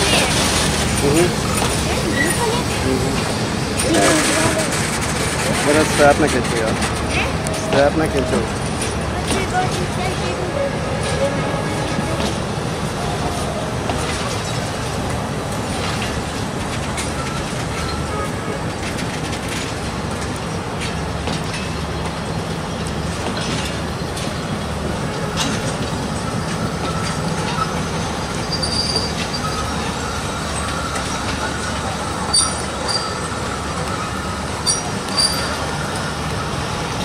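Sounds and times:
wheel squeals: 0:00.0 - 0:12.4, 0:16.8 - 0:19.8, 0:25.2 - 0:37.0
train wheels rumbling on rail: 0:00.0 - 0:37.0.

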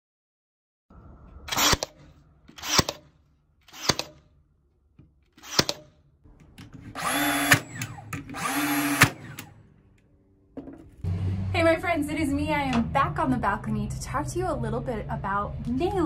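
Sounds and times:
nailer motor whirring: 0:01.5 - 0:03.0, 0:03.7 - 0:04.2, 0:05.4 - 0:06.0, 0:06.6 - 0:09.6
nail gun shot into wood: 0:05.4 - 0:05.9.

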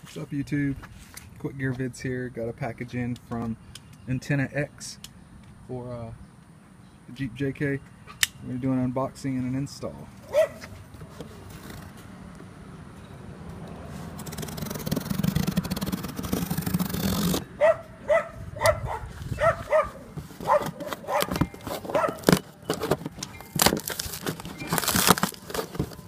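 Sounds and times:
dog barking: 0:10.3 - 0:10.6, 0:17.6 - 0:22.2
packing tape ripping: 0:14.2 - 0:17.5, 0:20.4 - 0:26.0.

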